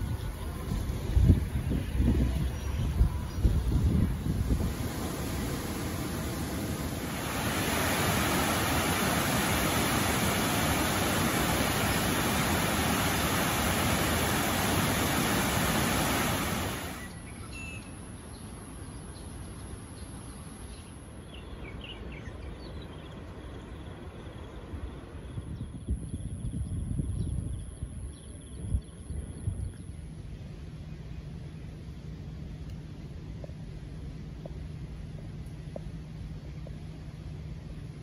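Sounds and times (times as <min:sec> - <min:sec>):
loud steady rushing noise: 0:00.0 - 0:17.1
faint bird chirps: 0:16.9 - 0:24.6.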